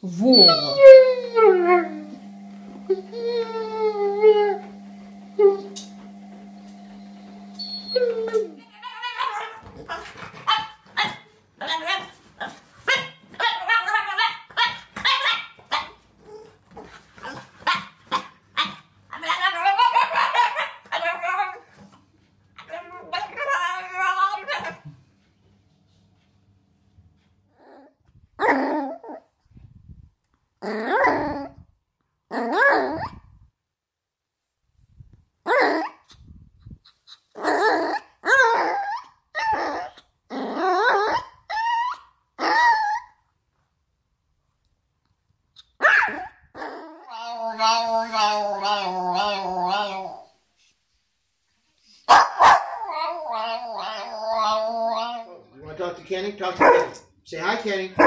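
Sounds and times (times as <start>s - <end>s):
dog wavering vocal noises: 0.0s - 5.8s, 46.6s - 50.4s, 51.9s - 55.5s
small dog yowling: 0.2s - 4.8s, 7.6s - 10.6s, 37.4s - 43.2s, 45.8s - 50.4s, 52.0s - 55.5s
puppy howl-like barking: 0.3s - 4.8s, 46.9s - 50.4s, 52.1s - 55.4s.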